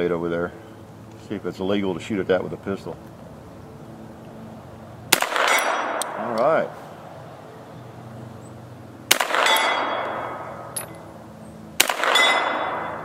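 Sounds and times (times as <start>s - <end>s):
pistol shots with echo: 5.1s - 6.3s, 9.1s - 10.9s, 11.8s - 13.0s.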